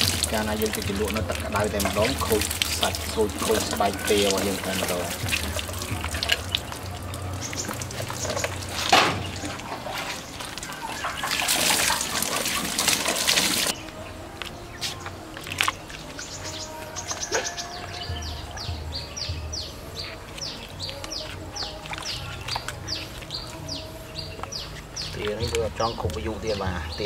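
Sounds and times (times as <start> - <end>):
water splashing over feathers: 0.0 - 13.8
birds chirping: 0.0 - 27.0.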